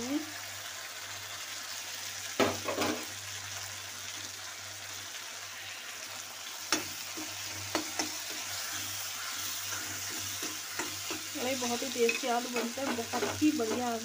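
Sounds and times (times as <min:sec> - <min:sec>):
masala sizzling in hot oil: 0:00.0 - 0:14.0.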